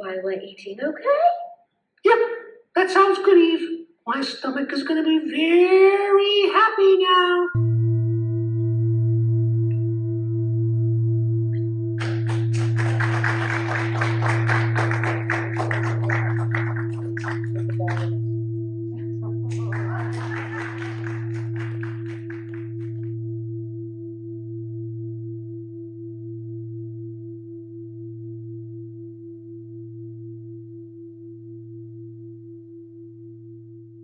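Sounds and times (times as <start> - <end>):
singing bowl ringing: 7.6 - 34.0.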